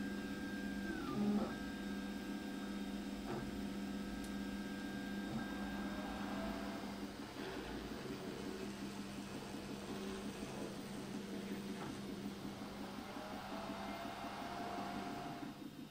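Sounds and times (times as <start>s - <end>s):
steady low hum: 0.0s - 15.9s
stepper motors whining: 4.9s - 15.6s.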